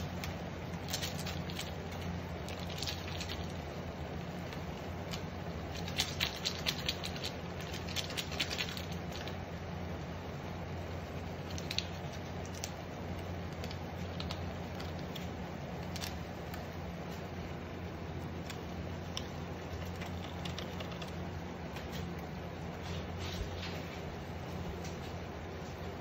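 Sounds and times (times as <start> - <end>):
electric cooktop hum: 0.0 - 26.0.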